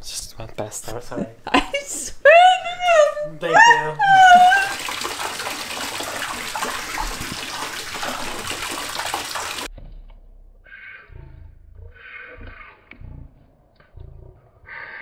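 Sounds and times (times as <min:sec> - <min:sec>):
tap water running into a tub: 0:02.4 - 0:09.7.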